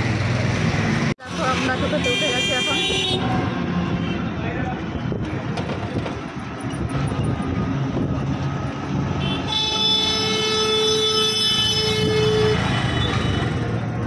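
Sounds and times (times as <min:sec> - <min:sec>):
road traffic: 0:00.0 - 0:14.0
vehicle horn blast: 0:01.8 - 0:03.3, 0:09.2 - 0:13.5.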